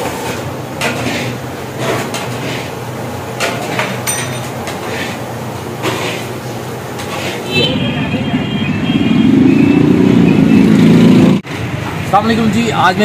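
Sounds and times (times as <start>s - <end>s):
metal spatula scraping pan: 0.0s - 2.8s, 3.4s - 5.2s, 5.8s - 6.4s, 7.0s - 7.7s.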